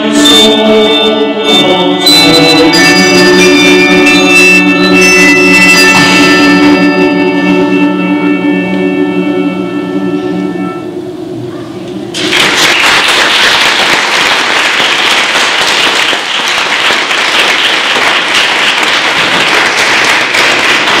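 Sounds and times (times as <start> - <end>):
congregation applauding: 12.1 - 21.0.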